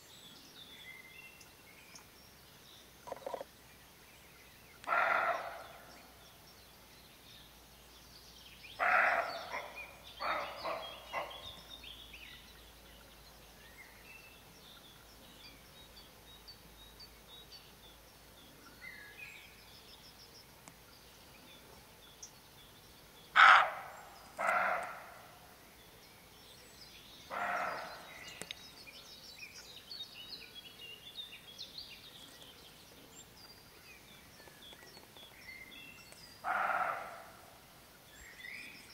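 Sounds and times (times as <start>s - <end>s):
faint birdsong: 0.0s - 38.9s
deer alarm barks: 4.9s - 5.6s, 8.8s - 11.4s, 23.4s - 25.1s, 27.3s - 28.0s, 36.4s - 37.2s.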